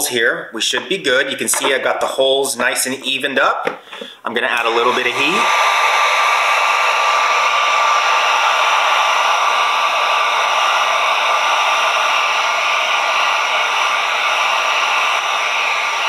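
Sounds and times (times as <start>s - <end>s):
heat gun blowing air: 3.9s - 16.0s.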